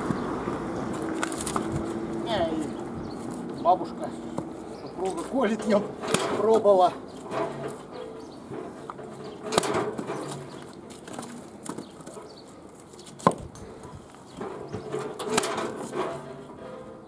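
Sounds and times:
wooden knocks of logs splitting: 5.1 - 7.8, 8.5 - 12.2, 13.1 - 13.6, 14.4 - 16.4.

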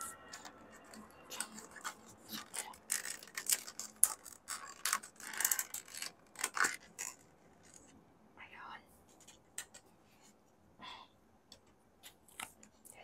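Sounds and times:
plastic sachet crinkling: 0.0 - 7.9.

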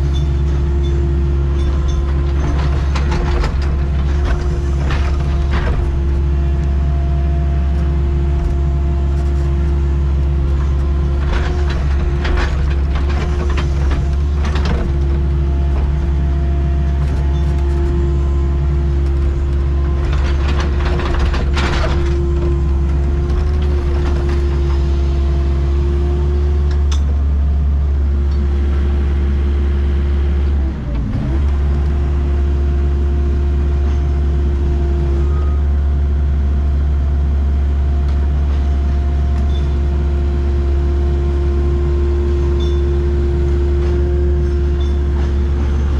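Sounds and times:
excavator diesel engine running: 0.0 - 45.9
bucket scraping and rattling: 10.6 - 16.4.

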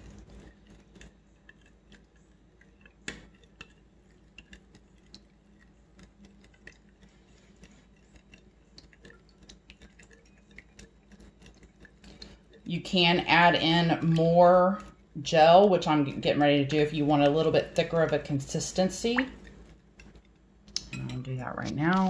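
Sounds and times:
spoon clicking and scraping bowl: 0.0 - 15.2.

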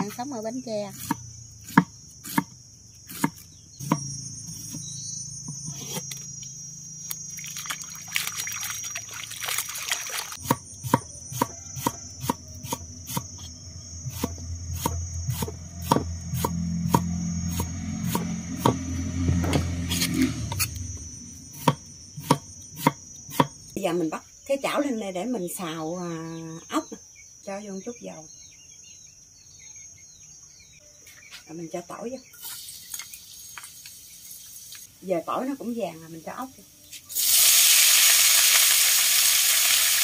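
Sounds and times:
insect trill: 0.0 - 40.0
cleaver chopping on wooden board: 1.0 - 2.5, 10.4 - 13.3, 14.2 - 18.8, 21.6 - 23.6
low hum: 12.0 - 23.8.

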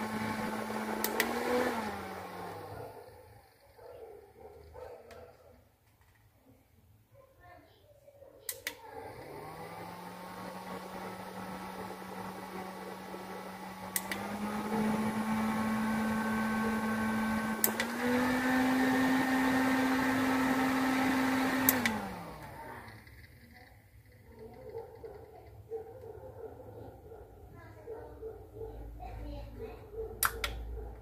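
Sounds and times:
desk fan motor humming: 0.0 - 4.8, 8.7 - 25.7
fan button click: 8.5 - 8.8, 13.9 - 14.3, 17.6 - 18.0, 21.6 - 22.1.

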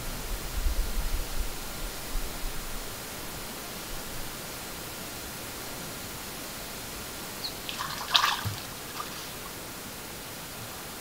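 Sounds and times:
microphone hiss: 0.0 - 11.0
otter splashing in water: 7.4 - 9.7.

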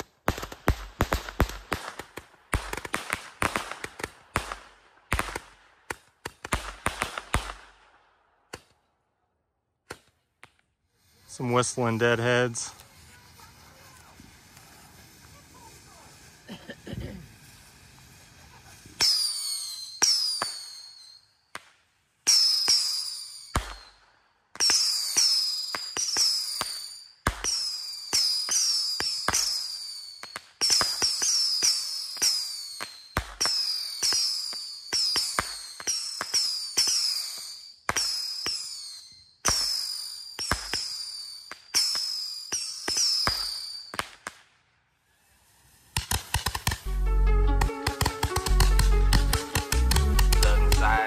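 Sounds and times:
firework pops: 0.0 - 7.8, 12.2 - 44.6, 45.8 - 51.0
shrill firework whistles: 11.0 - 21.5, 22.2 - 44.2, 44.9 - 51.0.

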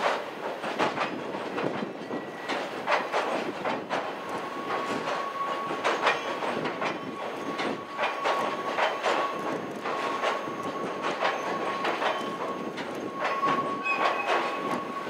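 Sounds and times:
train wheels clacking on bridge: 0.0 - 15.0
wind noise on microphone: 0.6 - 15.0.

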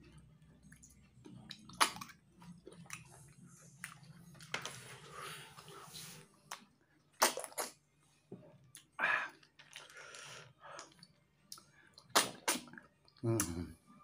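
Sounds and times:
chewing: 0.5 - 4.6.

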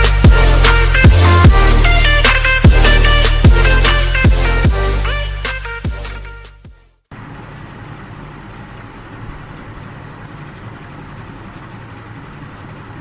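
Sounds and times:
intro music: 0.0 - 7.0
low hum: 7.1 - 13.0.

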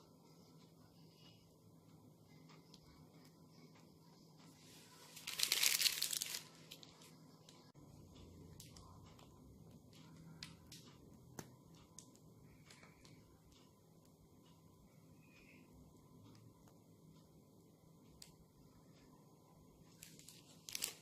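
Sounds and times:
plastic bag crinkling: 5.1 - 7.1, 20.0 - 21.0.

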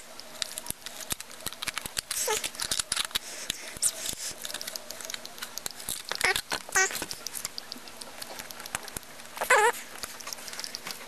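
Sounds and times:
plastic pieces clicking and tapping: 0.0 - 11.0
plastic squeak: 5.9 - 7.2, 9.4 - 9.8.

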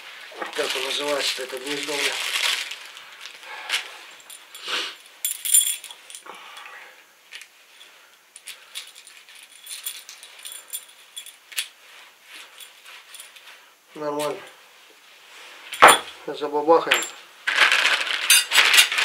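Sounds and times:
soft handling noises: 0.0 - 6.2, 7.2 - 16.3
keys and lock clinking and clicking: 5.3 - 6.2, 8.4 - 11.7.

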